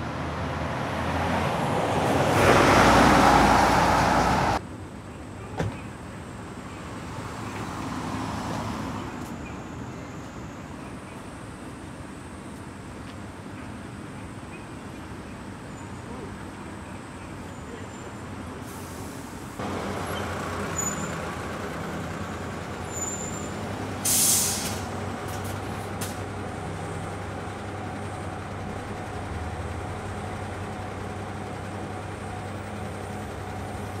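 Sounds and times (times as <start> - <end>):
air brakes hissing: 18.6 - 21.2, 22.8 - 25.0
diesel vehicle idling: 19.6 - 34.0.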